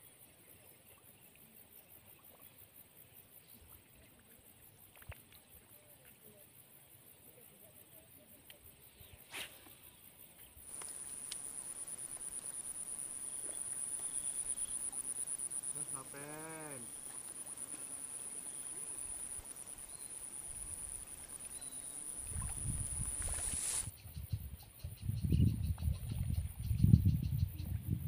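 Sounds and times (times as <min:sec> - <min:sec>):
insects buzzing: 0:08.8 - 0:24.9.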